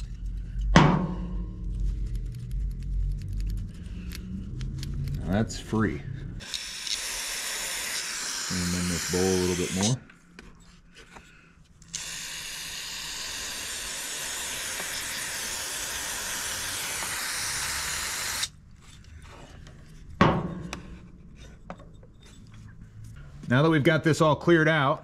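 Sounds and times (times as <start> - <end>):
loud knock: 0.8 - 1.5
pressurized spray hissing: 6.4 - 10.0, 12.0 - 18.5.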